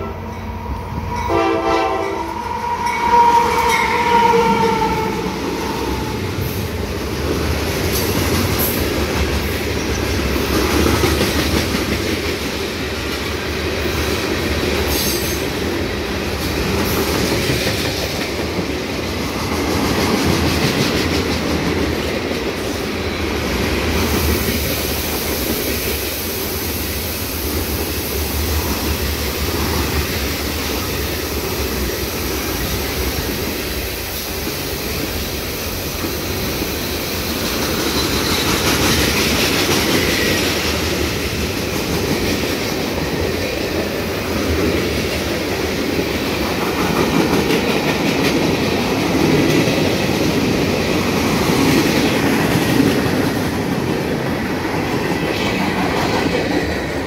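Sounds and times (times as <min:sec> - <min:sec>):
train horn blast: 0:00.0 - 0:06.4
freight cars rolling on rails: 0:00.0 - 0:57.0.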